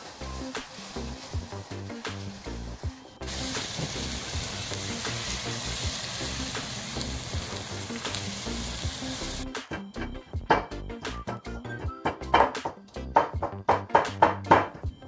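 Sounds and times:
onions sizzling in hot oil: 0:00.0 - 0:09.4
background music: 0:00.0 - 0:15.0
pestle knocking in stone mortar: 0:12.1 - 0:14.8.

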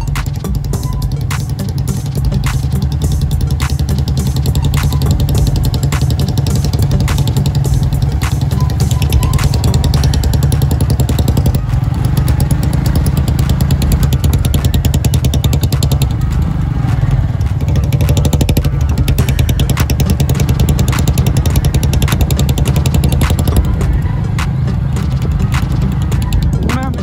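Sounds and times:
motorcycle engine running: 0:00.0 - 0:27.0
sharp clicks or knocks: 0:17.4 - 0:27.0.

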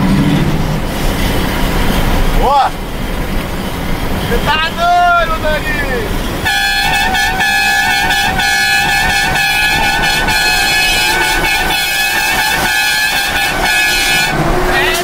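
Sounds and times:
truck air horn blast: 0:06.4 - 0:15.0.

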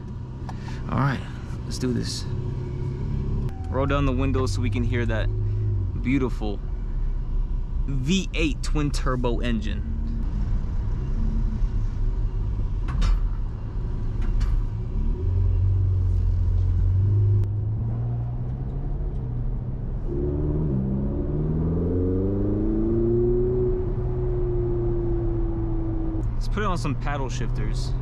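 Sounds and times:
car engine accelerating: 0:13.6 - 0:28.0.

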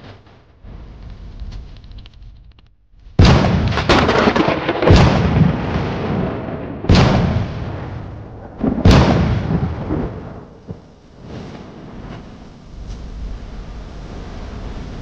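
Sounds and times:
heavy cinematic booms: 0:03.1 - 0:10.9.

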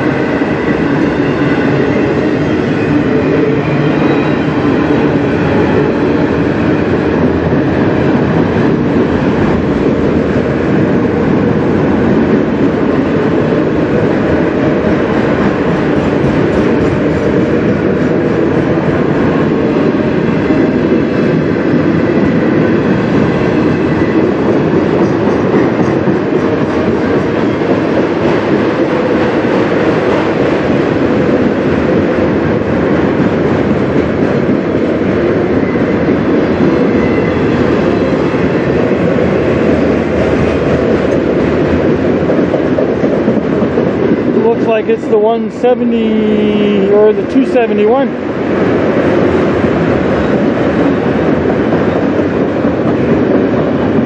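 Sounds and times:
freight cars rumbling and rattling: 0:00.0 - 0:54.0.

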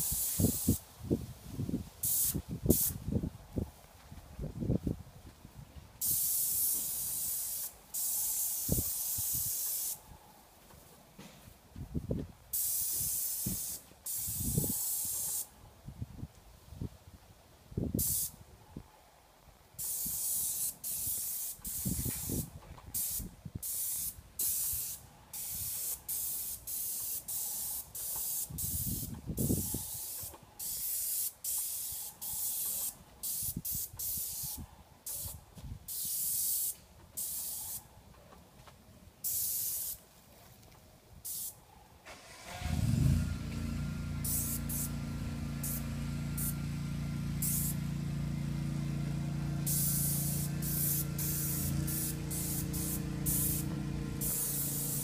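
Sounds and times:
paint spray gun hissing: 0:00.0 - 0:00.8, 0:02.0 - 0:03.0, 0:06.0 - 0:10.0, 0:12.6 - 0:15.5, 0:18.0 - 0:18.3, 0:19.8 - 0:37.9, 0:39.2 - 0:40.0, 0:41.3 - 0:41.6, 0:44.2 - 0:45.0, 0:45.6 - 0:46.6, 0:47.4 - 0:47.9, 0:49.6 - 0:55.0.

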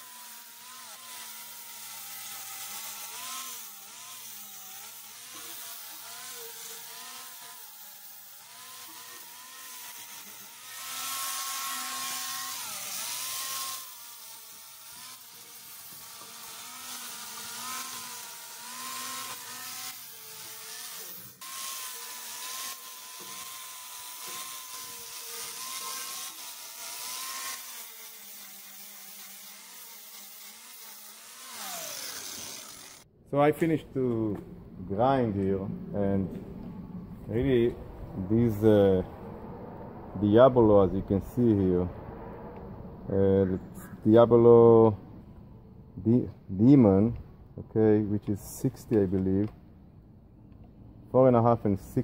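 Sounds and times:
angle grinder grinding metal: 0:00.0 - 0:33.1.

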